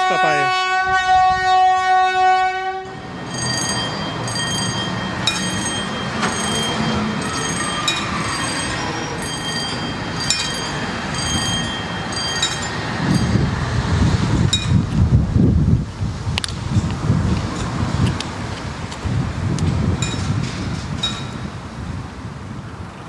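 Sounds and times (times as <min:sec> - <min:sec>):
horn sounding: 0:00.0 - 0:10.0
high ringing tones: 0:02.8 - 0:13.7
track machine rumbling on rails: 0:02.8 - 0:23.0.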